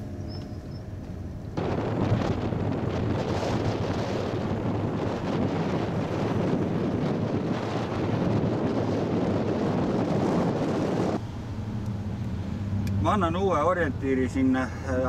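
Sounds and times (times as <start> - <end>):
low vehicle hum: 0.0 - 15.0
wind buffeting microphone: 0.1 - 11.2.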